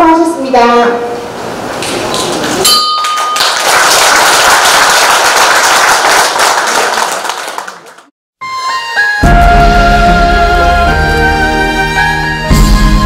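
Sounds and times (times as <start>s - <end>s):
audience applauding: 2.2s - 8.1s
bell ringing: 2.6s - 3.6s.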